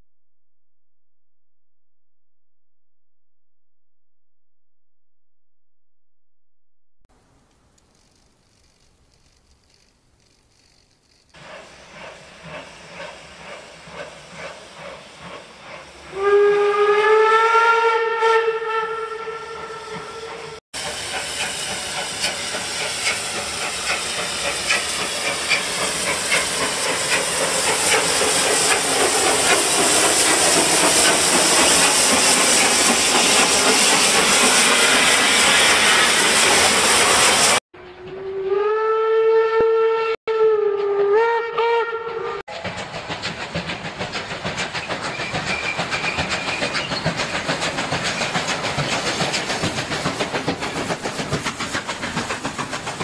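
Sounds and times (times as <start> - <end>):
steam locomotive chuffing: 8.0 - 18.0, 18.6 - 38.2, 42.5 - 53.0
loud hissing rush of steam: 11.4 - 16.4, 19.9 - 37.6, 42.6 - 53.0
steam whistle: 16.0 - 20.6, 34.4 - 42.4.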